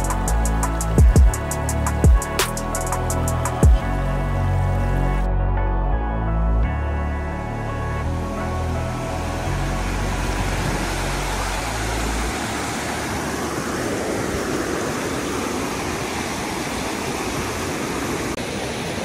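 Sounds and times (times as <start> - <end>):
river rapids rushing: 9.6 - 19.0.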